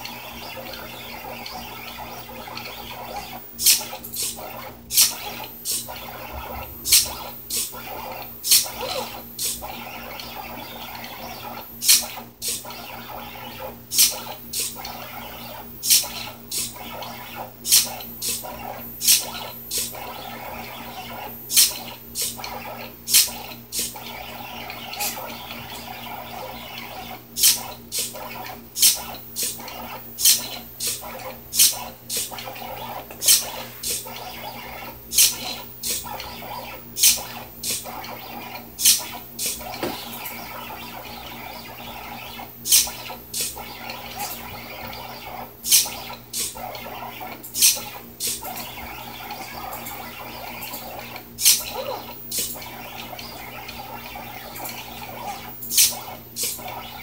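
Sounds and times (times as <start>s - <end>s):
stepper motors humming: 0.0s - 57.0s
servo clicking: 0.6s - 10.4s.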